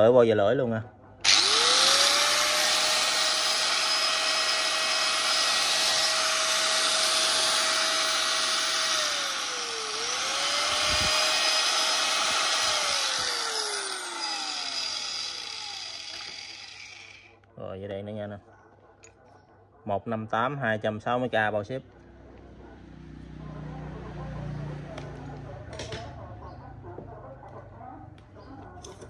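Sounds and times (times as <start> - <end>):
angle grinder whining: 1.2 - 17.3.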